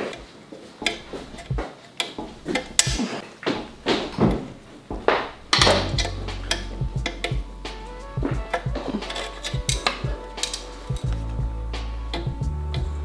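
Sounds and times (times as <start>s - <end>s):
pliers and spring metallic clicks: 8.5s - 11.2s.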